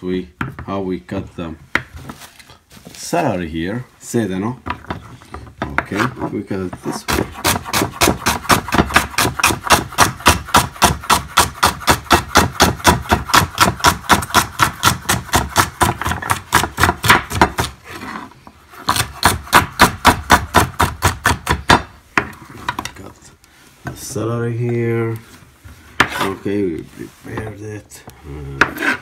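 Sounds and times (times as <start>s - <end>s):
knife chopping on wooden board: 6.7s - 17.8s, 18.9s - 22.8s.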